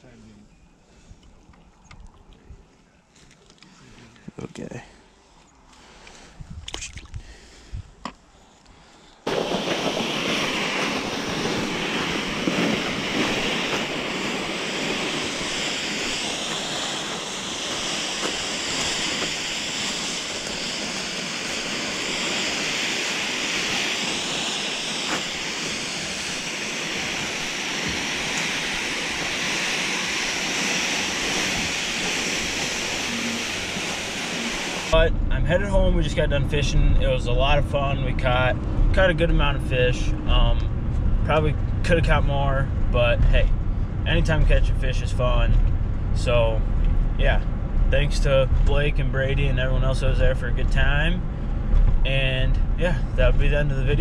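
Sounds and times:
wind on microphone: 6.2 - 8.0, 9.3 - 49.1.

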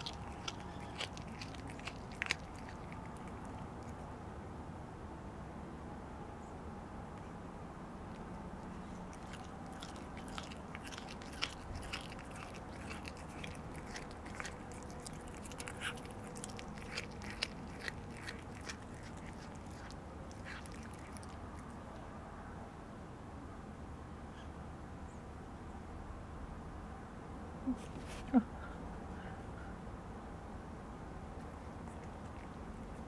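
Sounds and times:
cat chewing food: 0.0 - 4.1, 8.0 - 21.9, 31.3 - 33.0.

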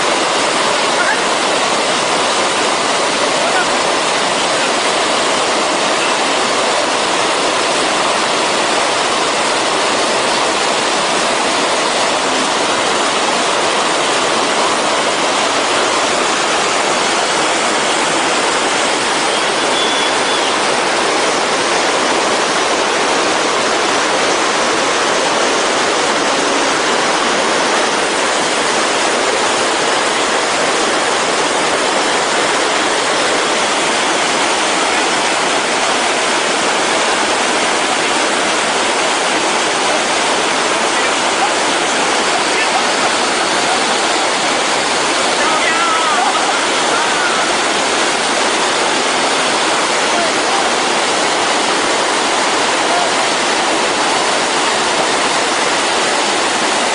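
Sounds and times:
stream pouring over boulders: 0.0 - 56.9.

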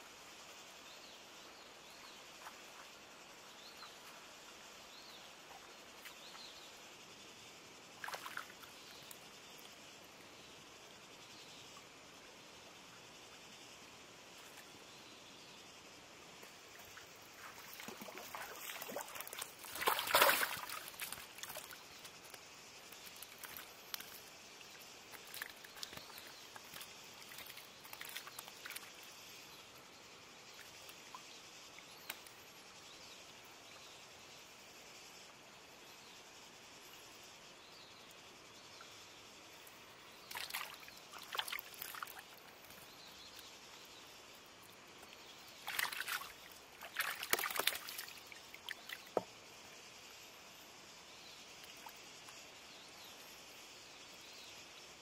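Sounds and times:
small splashes and clicks: 8.0 - 9.8, 16.4 - 29.1, 31.8 - 32.4, 40.2 - 43.5, 44.6 - 49.3
muddy water splashing: 17.3 - 21.8, 40.3 - 42.4, 45.6 - 49.0.

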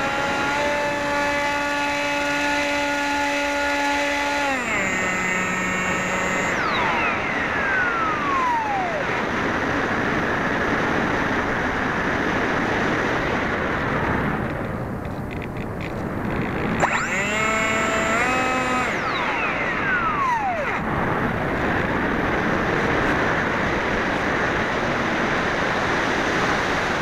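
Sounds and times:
electric motor and propeller whining: 0.0 - 27.0.

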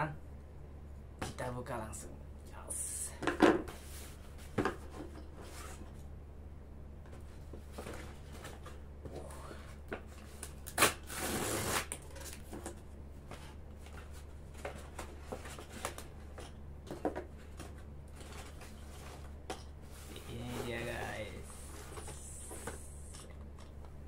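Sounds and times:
packaging rustling and scraping: 3.7 - 6.0, 7.1 - 8.8, 9.5 - 23.3
cardboard tearing: 10.4 - 12.5.

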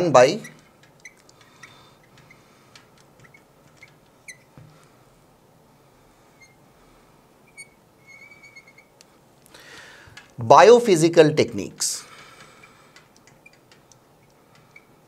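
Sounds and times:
marker squeaking on glass: 0.0 - 4.7, 6.3 - 6.6, 7.4 - 9.0, 12.3 - 15.0.

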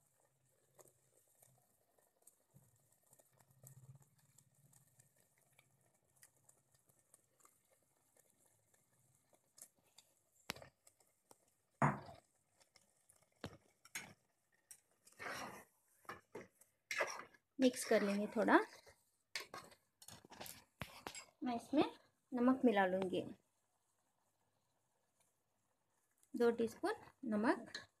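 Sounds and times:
food frying with faint crackle: 0.0 - 28.0
spoon scraping a metal pot: 13.5 - 21.4.

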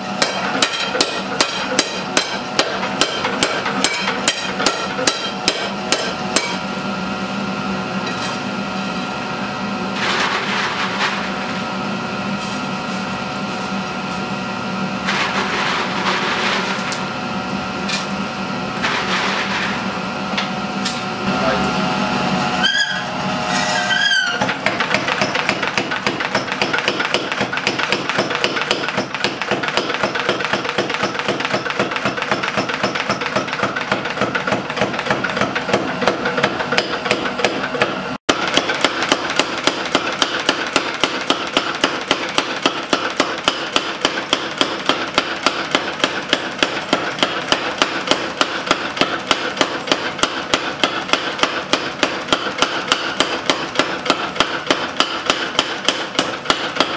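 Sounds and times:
power hammer pounding steel: 0.0 - 6.6, 24.4 - 56.9.

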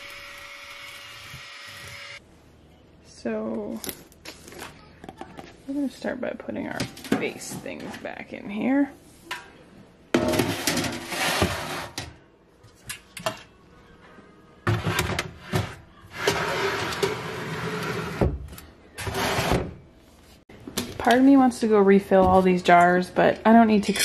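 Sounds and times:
metal pans scraping: 9.2 - 12.2, 14.6 - 18.4, 19.0 - 19.8.

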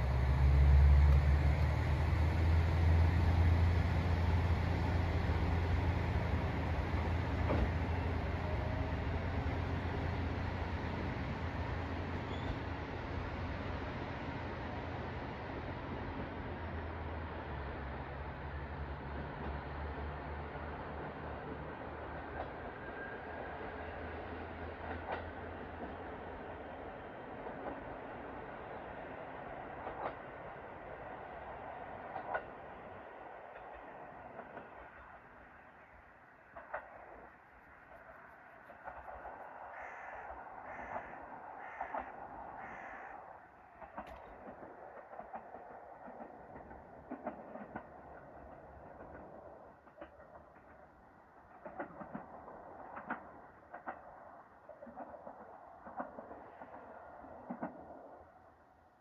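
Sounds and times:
diesel railcar running: 0.0 - 59.0
train rolling noise: 0.0 - 59.0
wheels clacking over rail joints: 3.6 - 9.1, 24.6 - 26.5, 32.0 - 32.8, 36.4 - 42.6, 43.5 - 58.4.

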